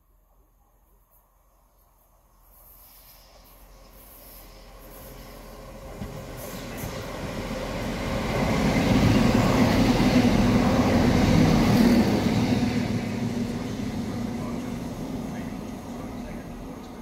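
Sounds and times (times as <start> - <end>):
train wheels on rail: 2.4 - 17.0
low hum of passing carriages: 5.4 - 17.0.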